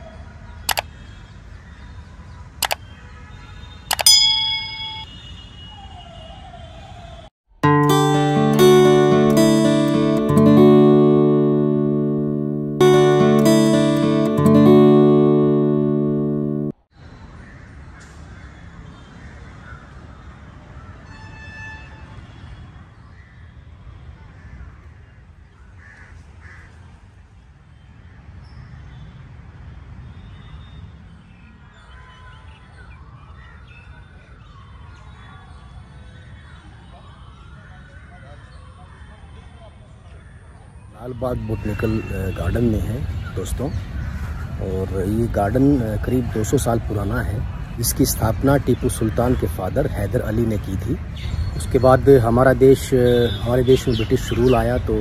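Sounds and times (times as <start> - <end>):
notification bell ding: 3.9 - 5.1
crows cawing: 43.2 - 44.6.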